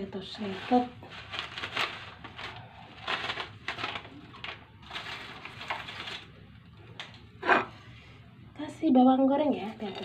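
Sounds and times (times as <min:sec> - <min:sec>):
rustling and crinkling: 0:00.1 - 0:06.4.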